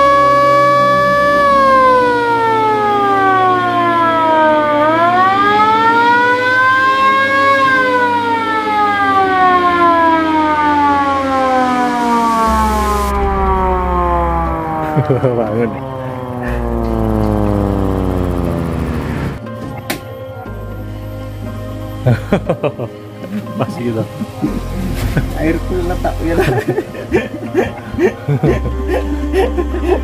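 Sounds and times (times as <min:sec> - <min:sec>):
ambulance siren wailing: 0:00.0 - 0:30.0.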